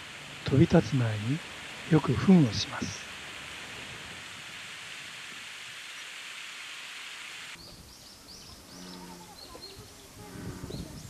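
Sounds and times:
running water hiss: 0.0s - 11.0s
bird chirping: 7.6s - 11.0s.

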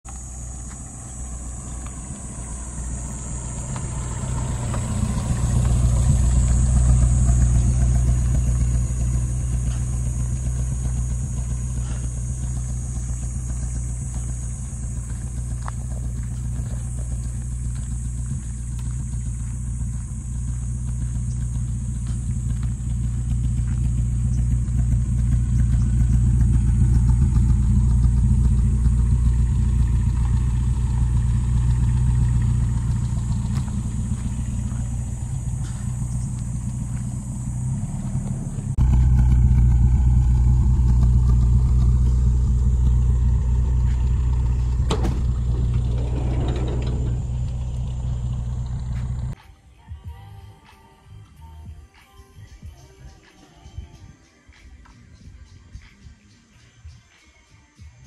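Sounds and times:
vehicle engine low hum: 0.0s - 49.4s.

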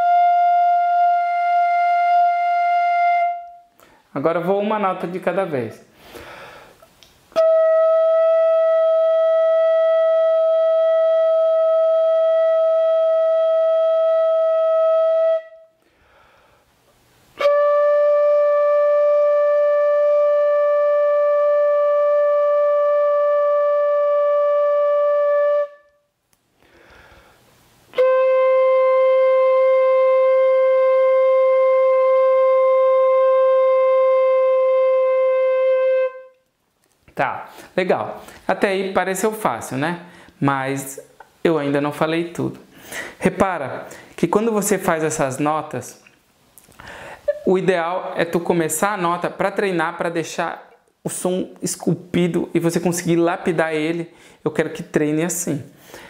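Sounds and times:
fife playing long notes: 0.0s - 3.7s, 7.3s - 15.7s, 17.4s - 26.0s, 27.9s - 36.5s.

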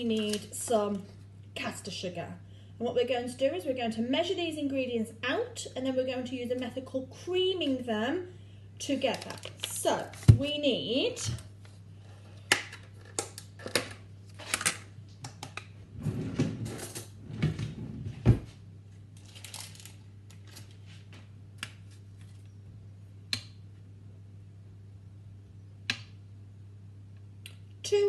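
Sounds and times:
seal peeling with crackly rustle: 19.2s - 20.8s.

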